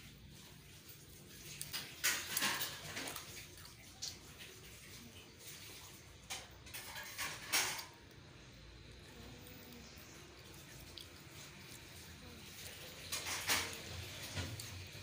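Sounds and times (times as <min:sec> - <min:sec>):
wet slurping and licking: 0:08.6 - 0:15.0.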